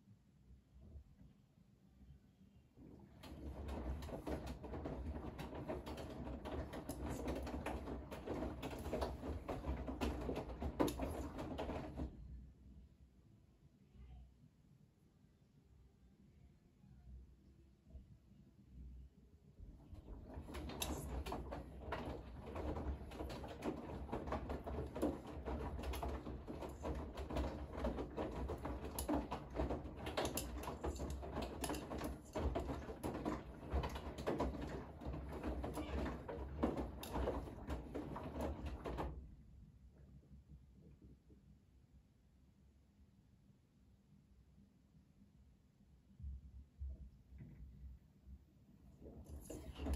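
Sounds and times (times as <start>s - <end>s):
washing machine motor hum: 2.8s - 12.3s, 19.6s - 39.4s, 48.9s - 49.9s
laundry tumbling in drum: 3.1s - 12.3s, 19.8s - 39.3s, 49.0s - 49.9s.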